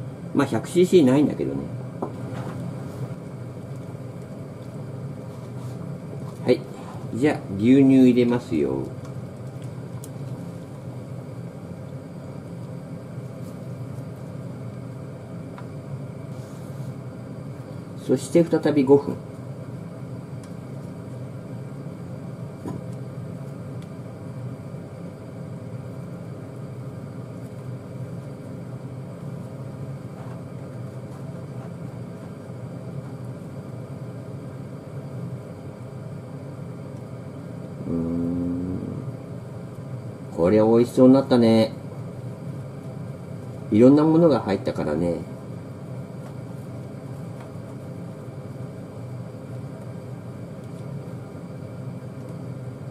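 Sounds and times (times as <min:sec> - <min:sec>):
kitchen fan humming: 0:00.0 - 0:52.9.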